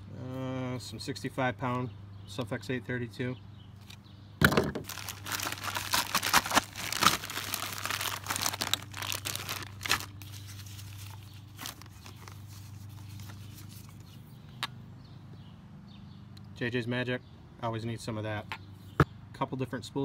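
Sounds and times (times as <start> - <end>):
low steady hum: 0.0 - 20.0
plastic bag crinkling: 4.8 - 13.9.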